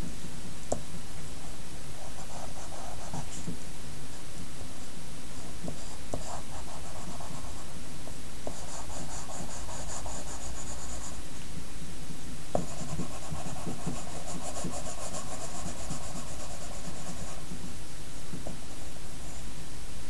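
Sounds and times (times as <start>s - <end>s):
pencil scratching on paper: 2.0s - 3.5s, 5.7s - 7.7s, 8.5s - 11.2s, 12.6s - 17.6s.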